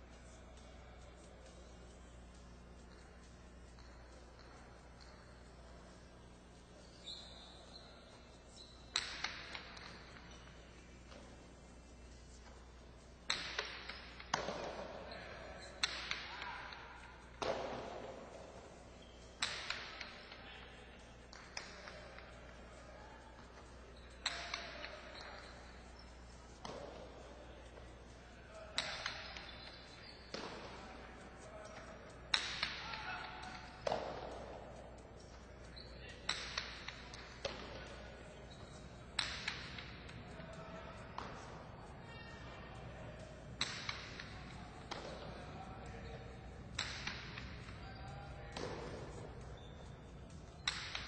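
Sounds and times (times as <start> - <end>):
murmur of arena crowd: 0.0 - 51.0
ball cracking against walls: 8.9 - 10.4, 13.3 - 16.6.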